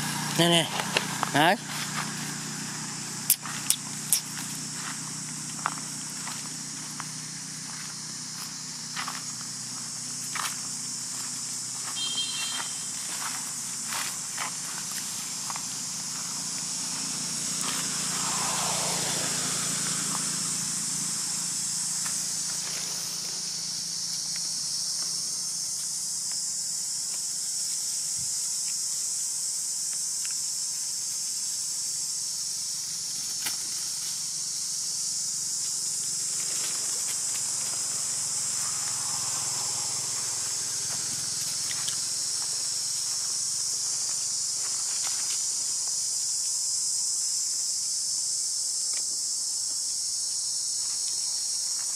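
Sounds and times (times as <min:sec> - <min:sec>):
insect chorus drone: 0:00.0 - 0:51.9.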